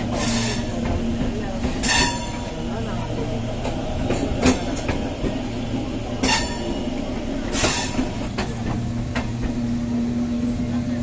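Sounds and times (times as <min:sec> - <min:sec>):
train wheels rumbling: 0:00.0 - 0:11.0
metallic wheel clanks: 0:06.2 - 0:06.8.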